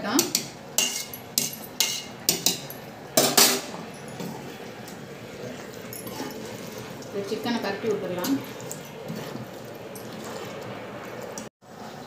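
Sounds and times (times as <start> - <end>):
metal spoon clinking on pot: 0.2 - 4.3.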